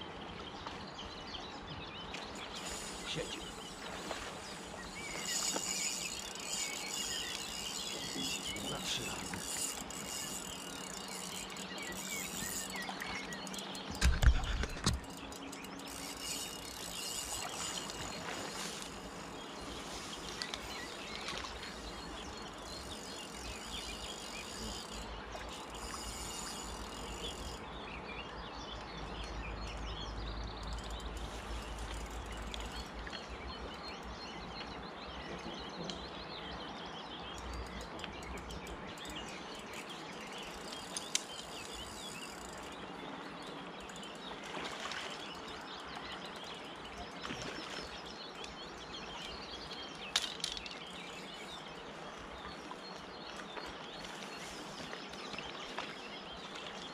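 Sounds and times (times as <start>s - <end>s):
small birds chirping: 0.2s - 56.9s
river running over stones: 2.2s - 27.8s.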